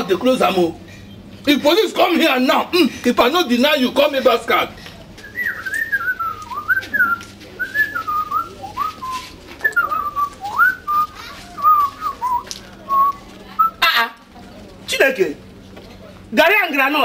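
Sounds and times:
person whistling a tune: 0:05.2 - 0:13.2.

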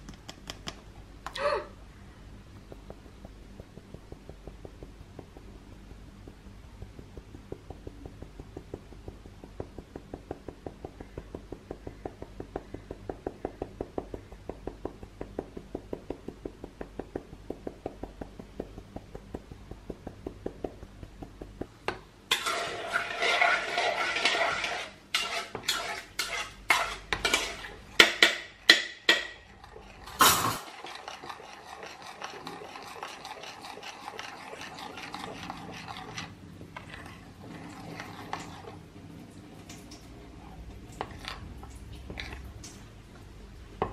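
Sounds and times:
metal spoon stirring in bowl: 0:22.3 - 0:38.8, 0:40.3 - 0:42.6.

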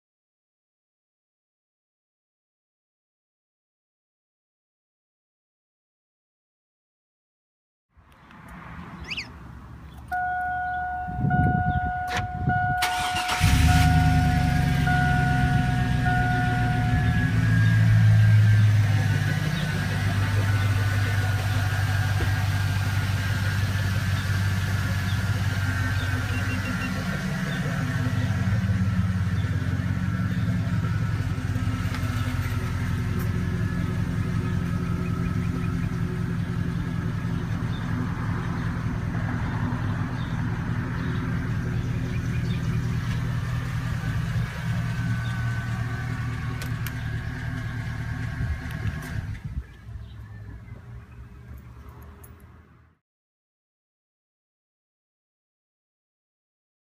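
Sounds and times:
car engine idling: 0:09.0 - 0:51.7.

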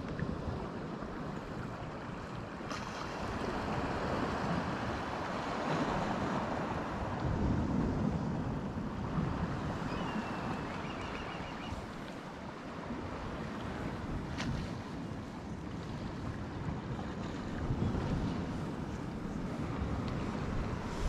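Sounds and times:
sea surf: 0:00.0 - 0:21.0
wind: 0:00.0 - 0:21.0
wind noise on microphone: 0:02.7 - 0:21.0.

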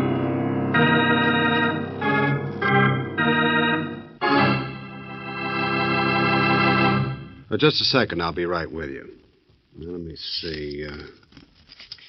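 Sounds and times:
organ chords: 0:00.0 - 0:07.5.

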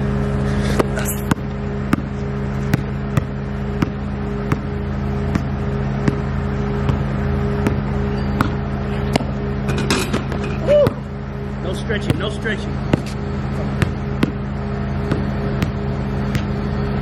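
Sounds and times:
low mechanical hum: 0:00.0 - 0:17.0
basketball bouncing on hard court: 0:00.8 - 0:09.4, 0:12.0 - 0:16.6.

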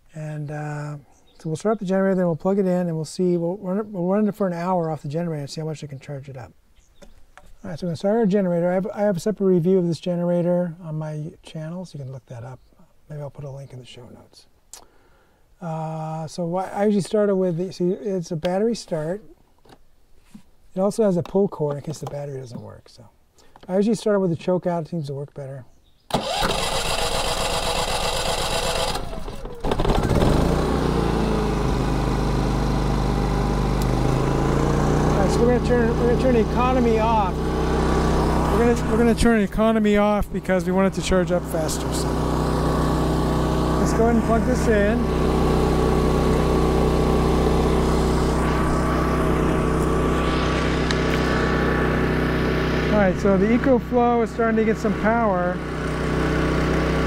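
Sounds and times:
electric starter cranking: 0:26.1 - 0:54.0, 0:54.6 - 0:57.0
generator engine running: 0:26.1 - 0:57.0.

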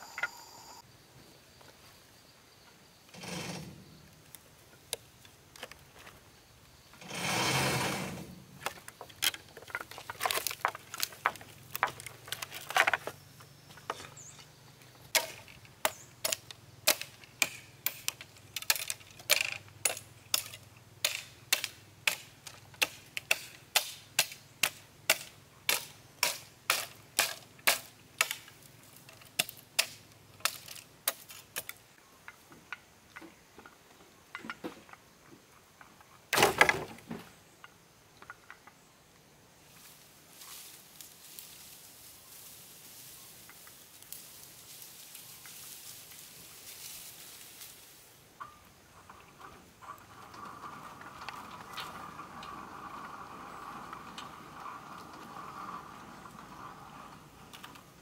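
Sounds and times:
knocks on bamboo poles: 0:15.1 - 0:28.5.

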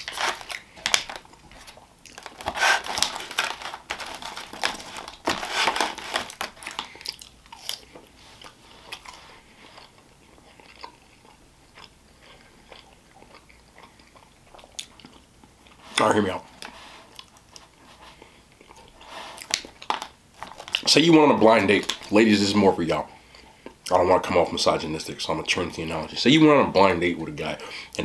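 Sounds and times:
close chewing with wet crunching: 0:06.3 - 0:15.8, 0:16.6 - 0:20.9.

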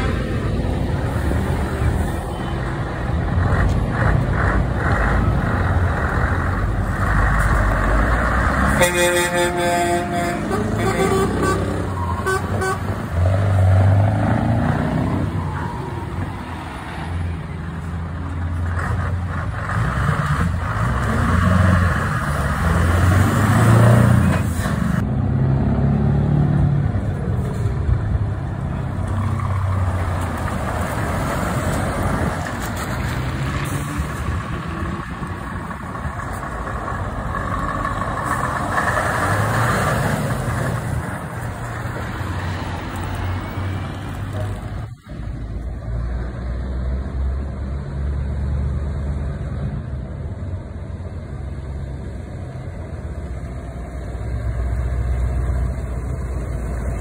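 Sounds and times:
trucks driving past: 0:00.0 - 0:57.0
horn toot: 0:08.7 - 0:12.9.

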